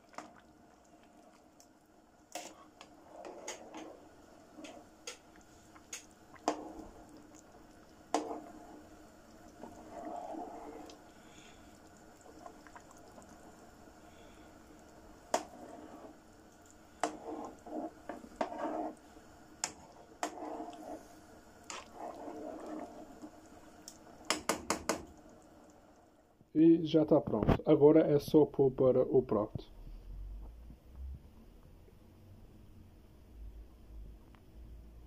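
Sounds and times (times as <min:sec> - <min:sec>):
stew squelching while stirred: 0:02.3 - 0:24.4.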